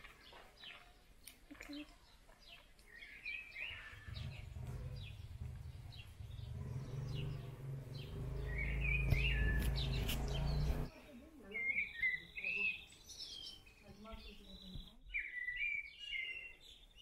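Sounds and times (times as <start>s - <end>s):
small birds chirping: 0.0s - 17.0s
low rumble: 3.8s - 10.9s.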